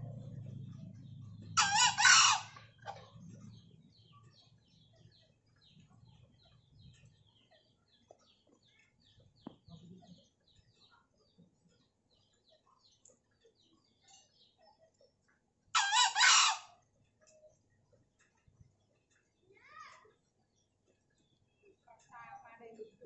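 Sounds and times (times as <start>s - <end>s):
rooster crowing: 1.6s - 2.5s.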